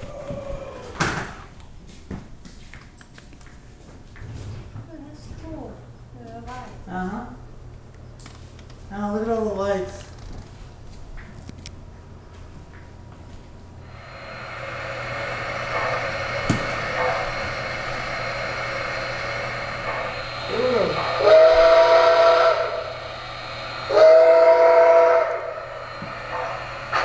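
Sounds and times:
steam hiss: 13.8 - 27.0
steam whistle blasts: 13.9 - 27.0.

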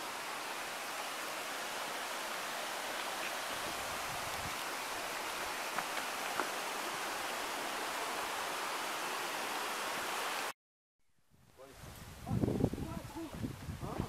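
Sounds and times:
mountain stream rapids rushing: 0.0 - 10.5.

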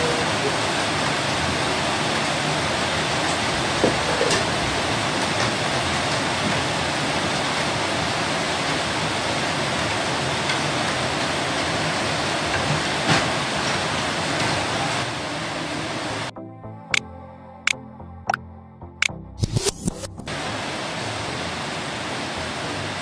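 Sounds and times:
steady rushing hiss: 20.3 - 23.0.

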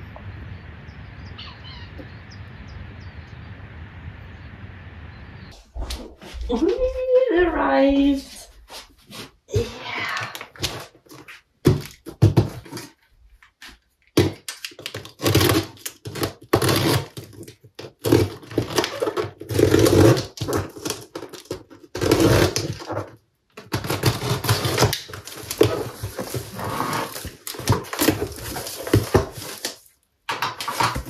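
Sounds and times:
cardboard rustling: 8.1 - 9.5, 10.3 - 31.0
packing tape ripping: 14.1 - 31.0
cutter slicing tape: 14.2 - 17.4, 18.0 - 21.2, 21.9 - 22.9.

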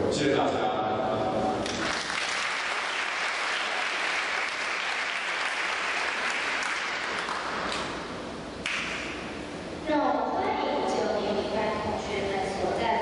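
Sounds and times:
audience applauding: 1.6 - 7.9.

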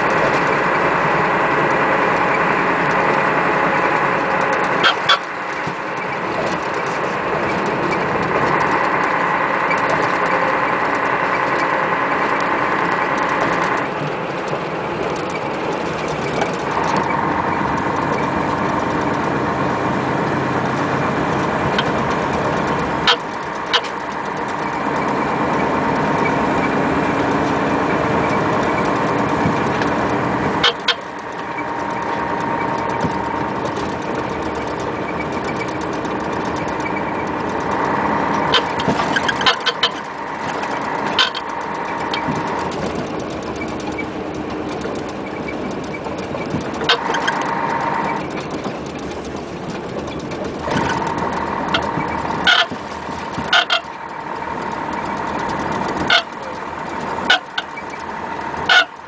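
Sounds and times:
coach engine and drivetrain noise: 0.0 - 59.0.

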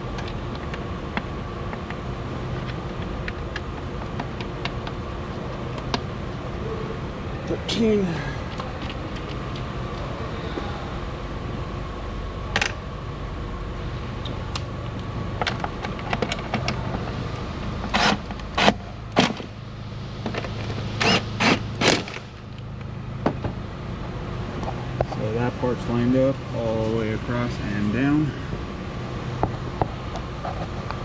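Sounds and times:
steady low hum: 0.0 - 31.0
power tool driving a bolt: 17.9 - 18.8, 21.0 - 22.2.

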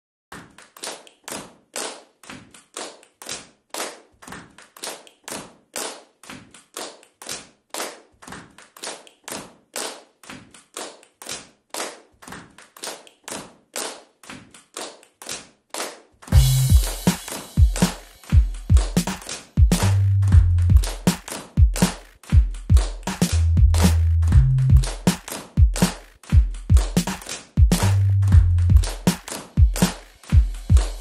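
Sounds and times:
electronic dance beat: 16.3 - 31.0.

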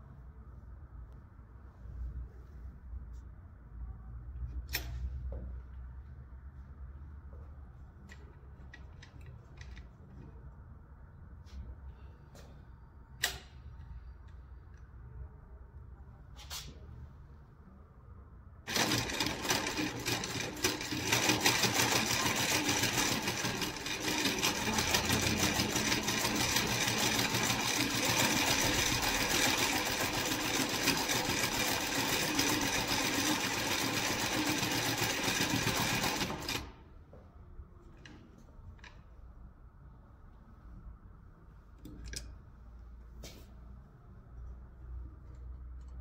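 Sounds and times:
sewing machine stitching: 18.7 - 36.8.

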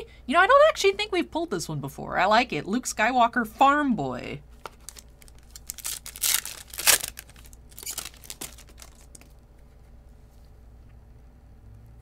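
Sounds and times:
foil wrapper tearing and crinkling: 4.6 - 9.3.

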